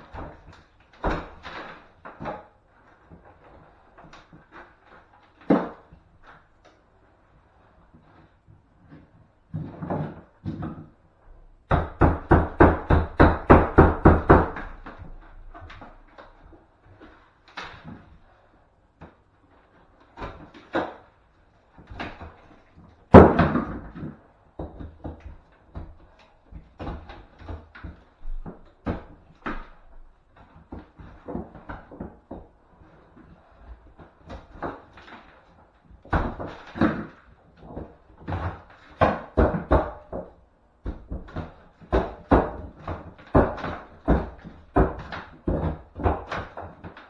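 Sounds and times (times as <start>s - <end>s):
hand tools knocking on wall: 11.7s - 15.0s.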